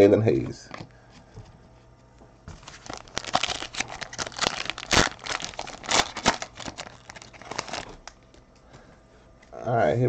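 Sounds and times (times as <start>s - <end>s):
foil wrapper crinkling and tearing: 2.6s - 8.4s.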